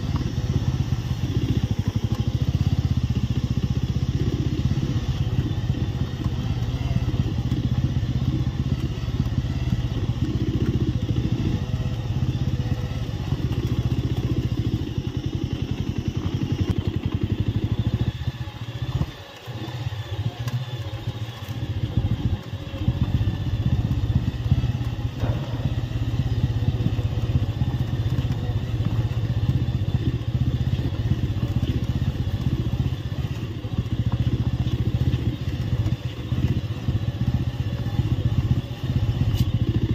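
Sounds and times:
motorcycle engine running: 0.0s - 39.9s.

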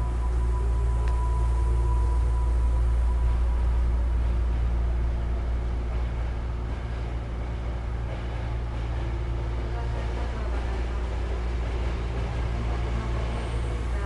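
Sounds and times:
faint electric hum tones: 0.0s - 14.0s
train wheels rumbling: 0.0s - 14.0s.

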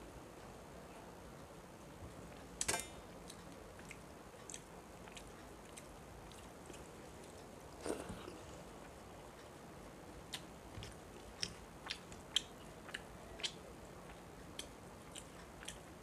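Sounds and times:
person chewing: 3.3s - 9.0s, 10.3s - 15.9s.

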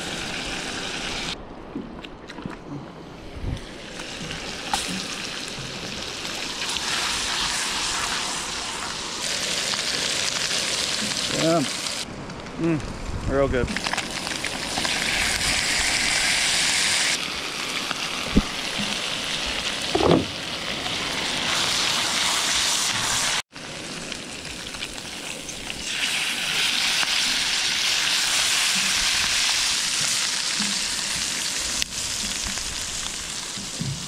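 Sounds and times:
crayfish sizzling in butter: 3.7s - 12.1s, 13.7s - 33.8s
knock: 20.0s - 20.3s.

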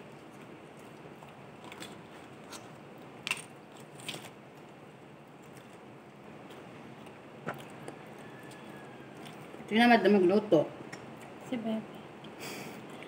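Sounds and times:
crunching fried chicken: 0.0s - 9.7s.

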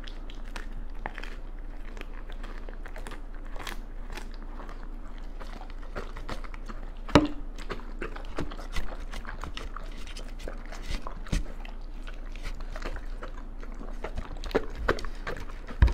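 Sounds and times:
dog licking and chewing food: 0.0s - 15.9s.

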